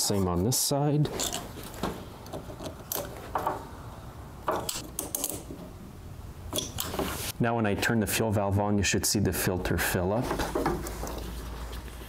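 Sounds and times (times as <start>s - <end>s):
pliers clicking on metal clamp: 6.5s - 6.9s.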